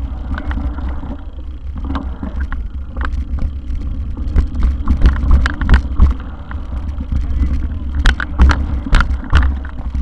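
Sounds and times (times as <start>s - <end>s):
wind buffeting microphone: 0.0s - 10.0s
bike clattering over bumps: 7.2s - 10.0s.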